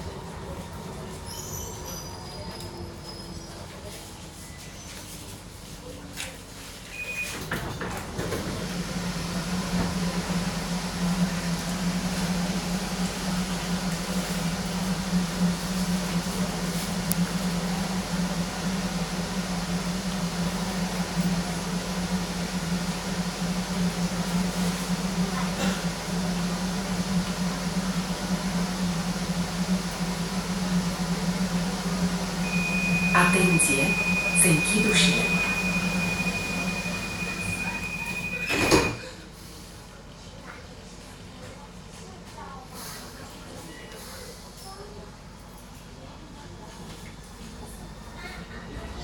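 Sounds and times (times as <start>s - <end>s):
train doors sliding open: 7.0s - 10.4s, 33.6s - 39.0s
train equipment humming: 7.4s - 39.0s.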